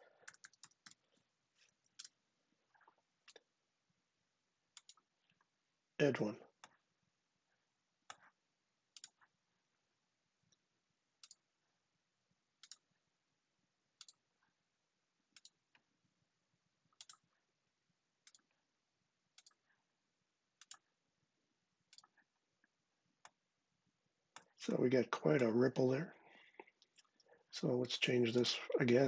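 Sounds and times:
computer mouse clicking: 0.2s - 1.0s, 1.9s - 2.2s, 4.8s - 5.1s, 8.9s - 9.3s, 11.2s - 11.4s, 12.6s - 12.9s, 14.0s - 14.2s, 15.3s - 15.8s, 16.9s - 17.4s, 18.2s - 18.6s, 19.3s - 19.6s, 20.6s - 20.9s, 21.9s - 22.2s.

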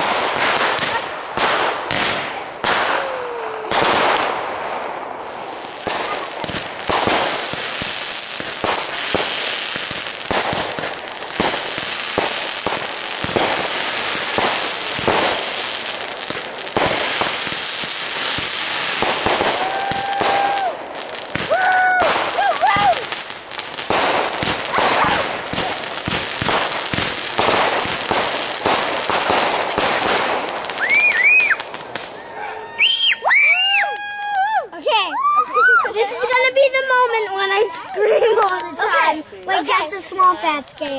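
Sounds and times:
fireworks popping and banging: 0.0s - 32.3s, 35.8s - 40.9s
firework hissing crackle: 0.0s - 34.5s, 35.7s - 40.9s
falling whistle: 30.8s - 31.6s, 32.7s - 34.0s.

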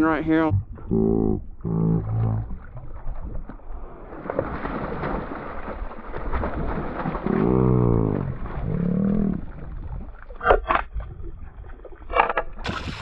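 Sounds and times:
wordless voice sounds: 0.0s - 2.4s
fish splashing in water: 2.2s - 11.9s, 12.6s - 13.0s.

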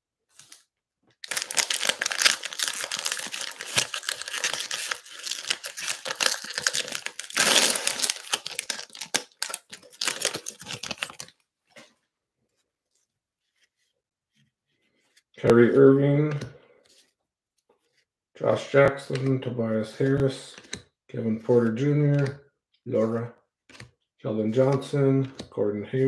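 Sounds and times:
cellophane crinkling: 1.2s - 11.3s
cellophane tearing: 1.2s - 11.3s.

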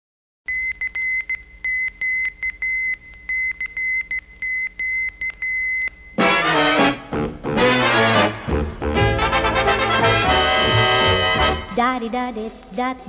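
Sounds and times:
morse code beeps: 0.5s - 6.3s
brass-led swing music: 6.2s - 12.0s.

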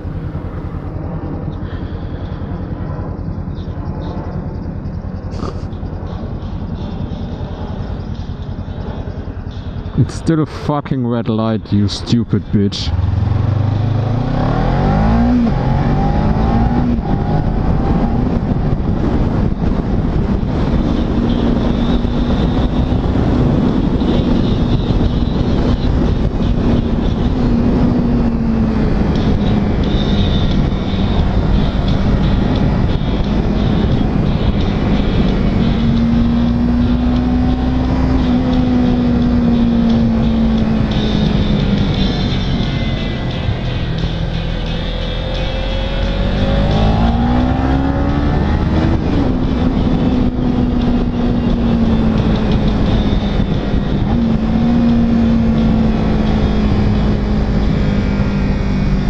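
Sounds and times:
steady rushing noise: 0.0s - 59.0s
motorcycle engine accelerating: 12.5s - 59.0s.

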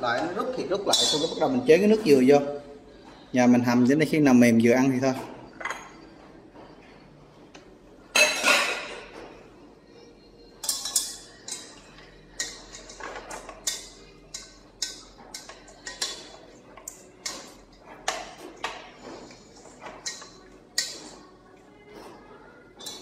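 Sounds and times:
utensil scraping and clinking pot: 10.6s - 21.3s.

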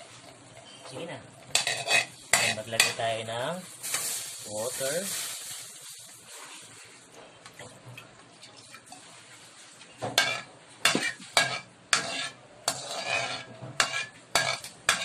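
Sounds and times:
metal spatula scraping wok: 1.5s - 3.0s, 10.2s - 15.0s
butter sizzling in wok: 3.6s - 6.6s, 10.2s - 15.0s.

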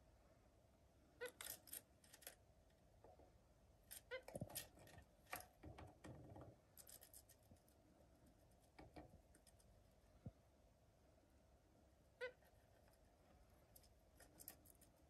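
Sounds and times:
birds scratching and rustling: 3.9s - 9.7s, 13.8s - 15.0s.

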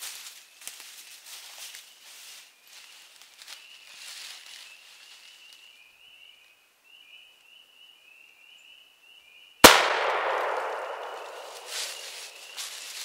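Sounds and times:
shotgun shot with echo: 9.6s - 12.6s.

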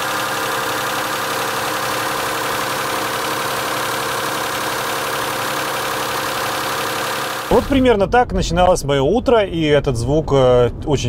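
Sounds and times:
car engine idling with ticking: 0.0s - 7.9s.

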